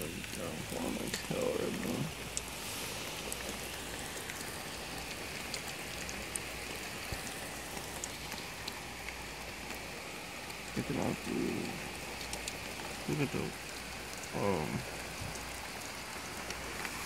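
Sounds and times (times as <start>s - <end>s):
heavy rain pouring: 0.0s - 17.0s
raindrops ticking nearby: 0.0s - 17.0s.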